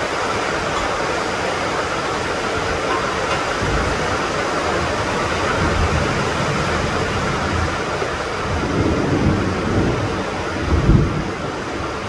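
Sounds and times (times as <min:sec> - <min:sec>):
heavy rain on tiled roofs: 0:00.0 - 0:12.0
low rumble of thunder: 0:03.5 - 0:12.0.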